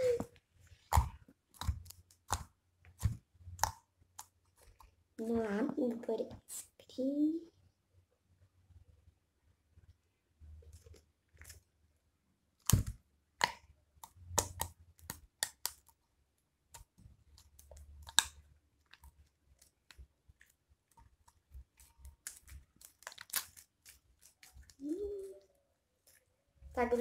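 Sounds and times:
slime squished by hand: 0:00.8 - 0:04.8, 0:12.6 - 0:16.0, 0:16.7 - 0:24.9
sticky slime pops and crackles: 0:00.9 - 0:04.4, 0:12.6 - 0:16.0, 0:16.8 - 0:20.5, 0:21.1 - 0:24.8.

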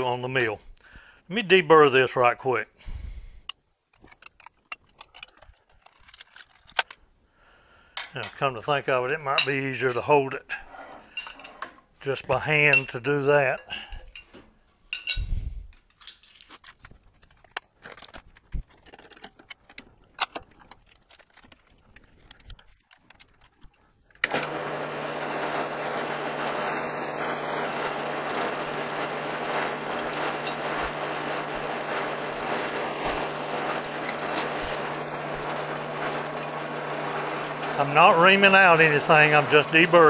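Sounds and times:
metal tools clinking: 0:03.9 - 0:07.0, 0:09.3 - 0:11.9, 0:12.6 - 0:21.5, 0:29.2 - 0:36.6
drill press motor humming: 0:24.2 - 0:40.0.

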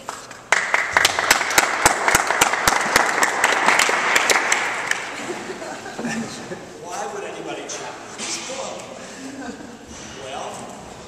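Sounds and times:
small audience applauding: 0:00.5 - 0:05.3.

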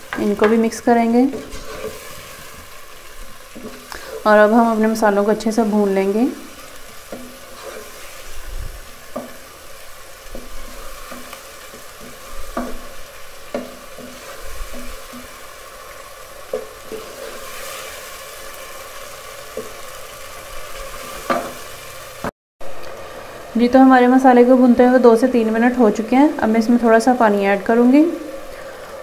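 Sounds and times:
food sizzling in a pot: 0:00.0 - 0:29.0
wooden spatula scraping: 0:00.2 - 0:02.8, 0:06.6 - 0:09.5, 0:10.2 - 0:15.4, 0:16.5 - 0:18.2.

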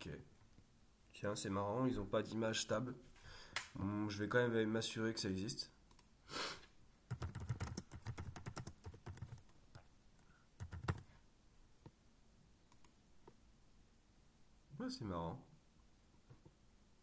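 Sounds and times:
typing on computer keyboard: 0:07.1 - 0:09.5, 0:10.6 - 0:11.1.

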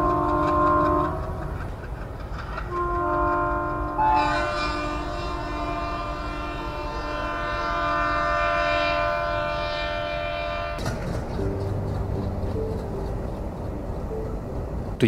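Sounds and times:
locomotive horn blast: 0:00.0 - 0:01.4, 0:02.7 - 0:11.3
moving train rumble: 0:00.0 - 0:15.0.

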